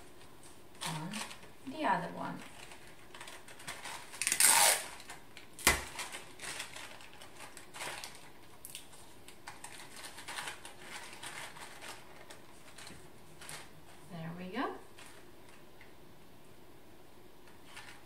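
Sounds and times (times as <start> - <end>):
paper scraping rustle: 2.3 - 5.2, 5.8 - 14.1
light paper rustles and taps: 5.0 - 14.0.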